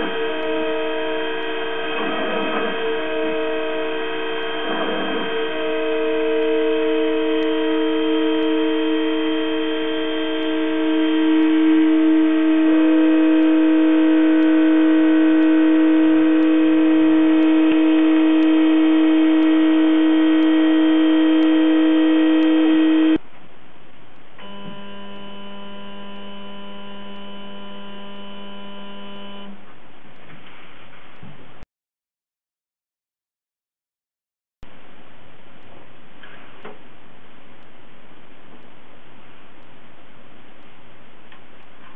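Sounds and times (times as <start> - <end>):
milling machine tones: 0.0 - 23.2, 24.4 - 29.6.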